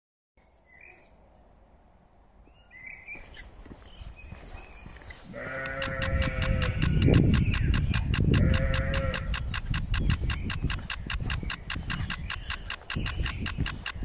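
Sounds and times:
faint birdsong chirps: 0.4s - 1.8s, 2.4s - 14.0s
sheep bleating: 5.3s - 7.2s, 8.3s - 9.4s
quick ticks: 5.5s - 14.0s.

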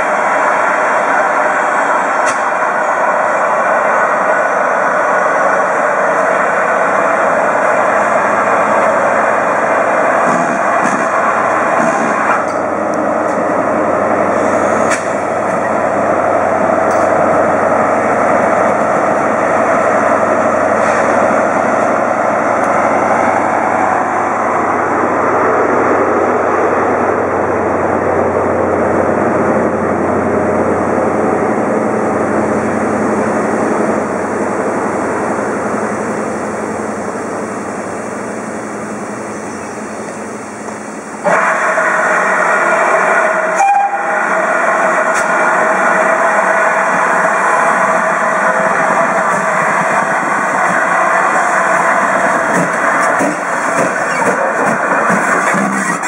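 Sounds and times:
steam roaring from safety valves: 14.2s - 18.6s, 39.2s - 56.0s.

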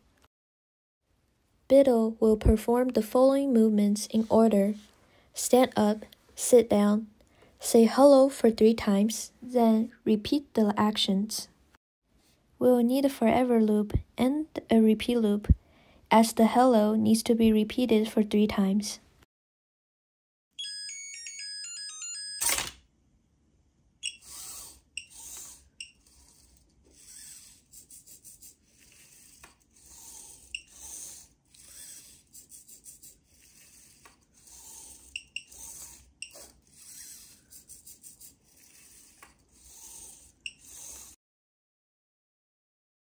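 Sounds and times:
buzzer beeping tune: 24.0s - 24.3s, 35.2s - 35.5s
servo motors whirring: 24.1s - 27.9s, 28.6s - 41.2s.

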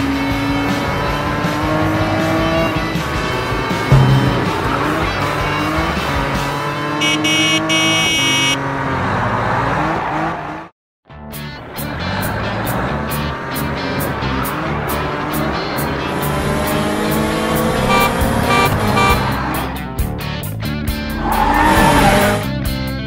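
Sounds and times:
background music: 0.0s - 6.9s
thump: 3.9s - 5.8s
cartoon car engine revving: 14.7s - 19.6s.

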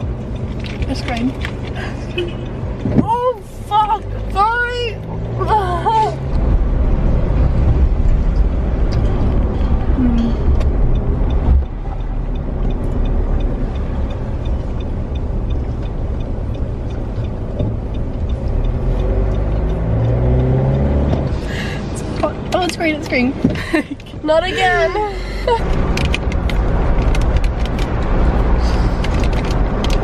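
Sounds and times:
car road and engine rumble: 0.0s - 30.0s.

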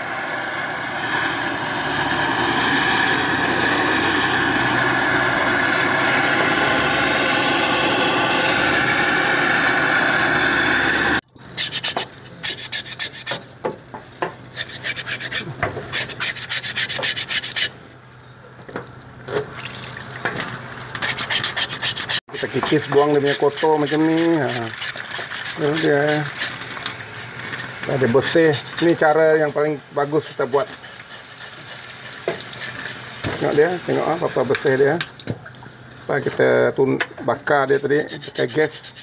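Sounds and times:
knife scraping charred skin: 11.5s - 13.6s, 14.4s - 17.8s, 21.0s - 29.0s, 30.2s - 33.5s, 37.8s - 39.0s.

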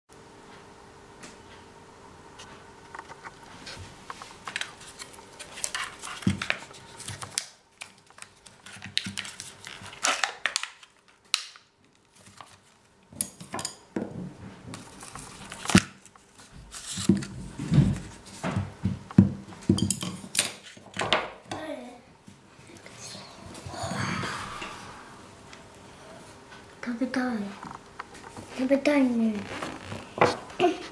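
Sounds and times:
plastic packaging crinkling: 4.1s - 12.9s, 14.8s - 18.2s.

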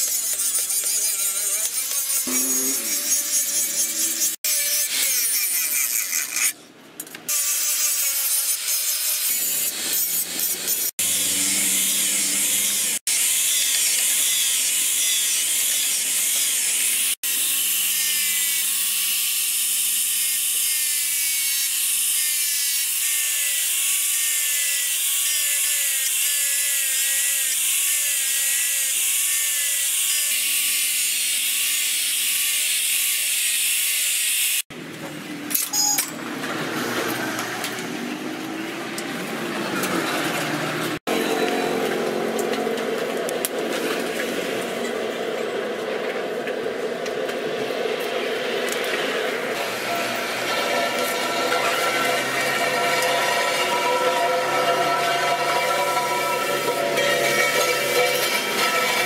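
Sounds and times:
angle grinder grinding steel: 0.0s - 6.6s, 7.3s - 34.6s, 47.9s - 59.0s.

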